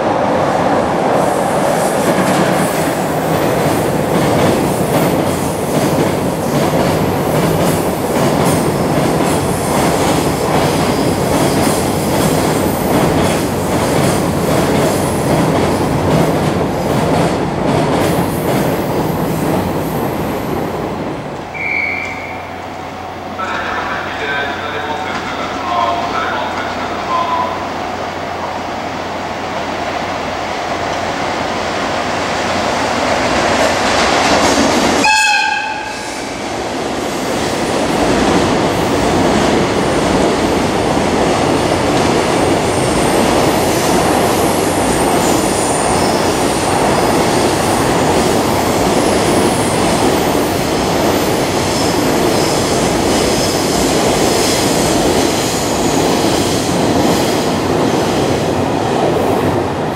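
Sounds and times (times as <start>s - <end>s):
freight train rumbling past: 0.0s - 59.9s
train horn: 35.0s - 36.1s.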